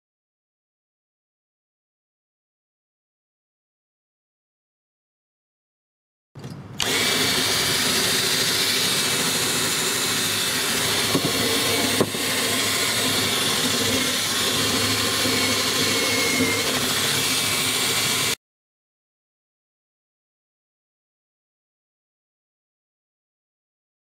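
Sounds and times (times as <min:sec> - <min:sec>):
drill wire brush scraping iron: 0:06.8 - 0:18.4.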